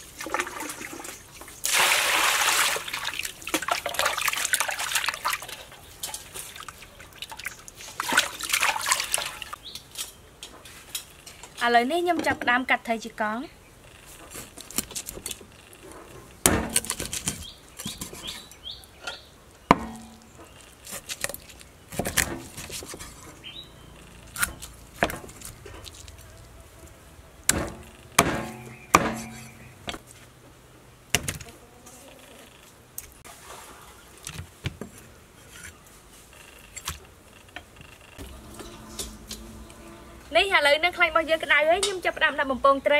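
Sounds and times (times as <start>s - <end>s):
knife chopping on wooden board: 27.5s - 29.6s.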